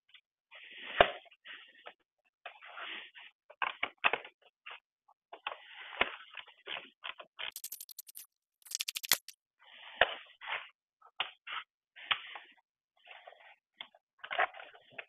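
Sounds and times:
plastic scraping and rubbing: 6.8 - 9.3.

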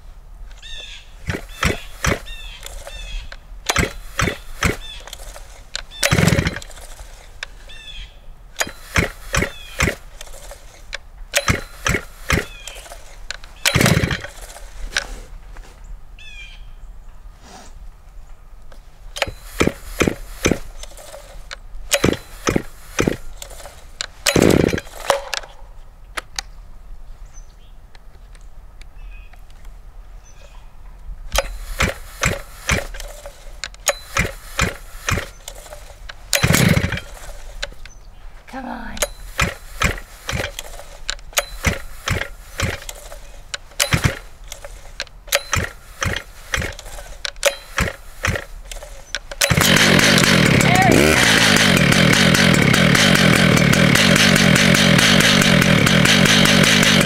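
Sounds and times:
chainsaw starter cord rattling: 0.6 - 7.9, 8.6 - 15.2, 19.1 - 25.7, 31.3 - 38.0, 39.0 - 57.0.

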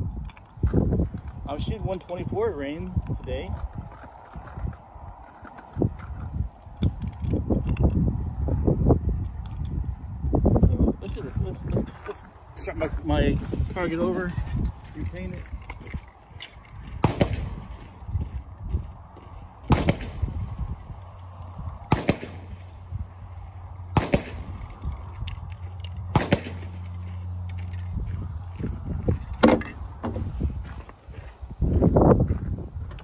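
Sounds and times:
pistol shots: 17.0 - 17.6, 19.7 - 20.3, 21.9 - 22.7, 23.9 - 24.6, 26.1 - 26.9.

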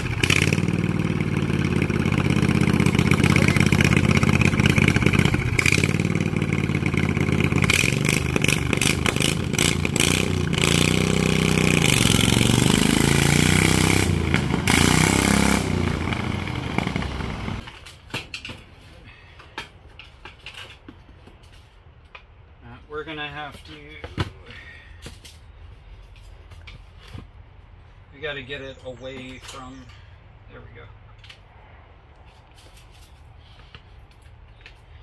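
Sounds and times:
lawn tractor engine revving: 0.0 - 17.7.

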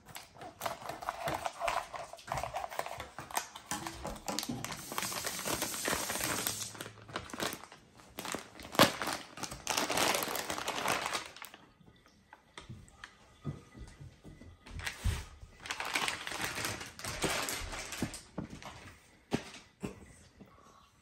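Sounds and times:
plastic bag crinkling: 0.0 - 11.8, 14.8 - 19.0.

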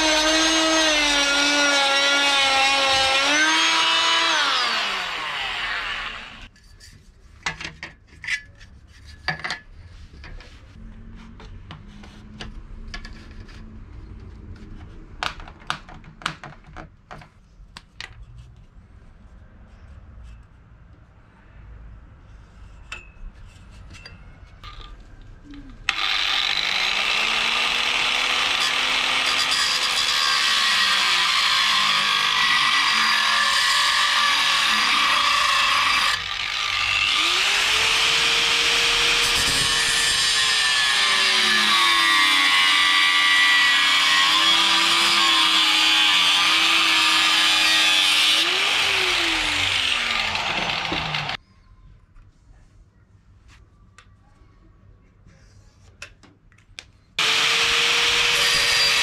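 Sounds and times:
angle grinder cutting metal: 0.0 - 6.5, 25.9 - 51.4, 57.2 - 59.0
power tool winding down: 0.0 - 6.5, 25.9 - 51.4, 57.2 - 59.0.

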